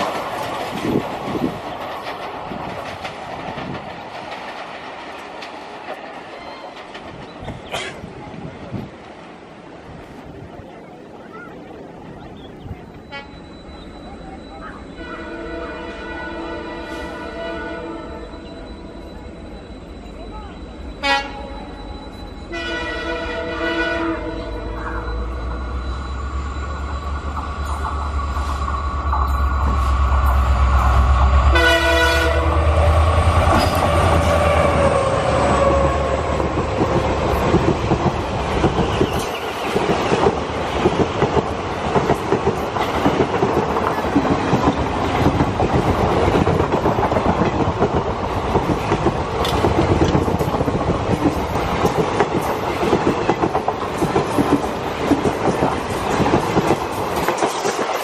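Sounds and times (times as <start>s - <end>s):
train wheels clacking over rail joints: 0.0s - 9.3s, 24.6s - 58.0s
diesel locomotive rumble: 0.0s - 57.9s
train horn blast: 13.1s - 13.4s, 15.0s - 18.5s, 20.9s - 21.7s, 22.5s - 25.1s, 31.4s - 36.0s.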